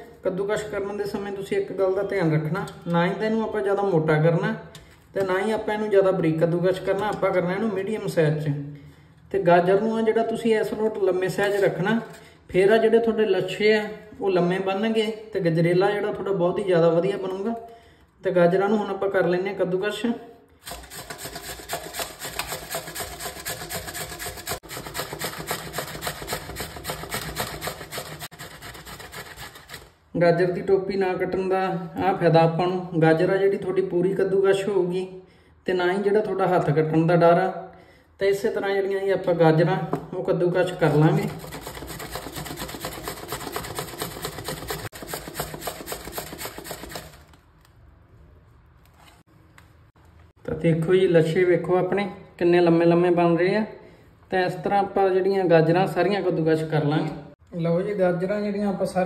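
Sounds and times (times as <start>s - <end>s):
carrots rasping on hand grater: 20.6s - 30.0s, 40.8s - 47.3s.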